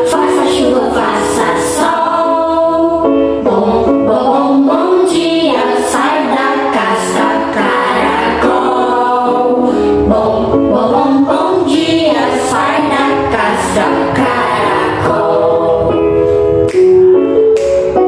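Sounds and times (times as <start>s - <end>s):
song with singing voices: 0.0s - 18.0s.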